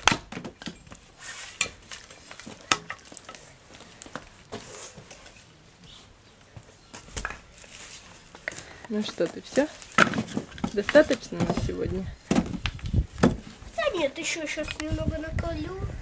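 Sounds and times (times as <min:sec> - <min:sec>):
axe striking log: 0:00.0 - 0:00.6
firewood pieces knocking together: 0:00.0 - 0:01.0, 0:01.6 - 0:04.6, 0:08.3 - 0:13.5.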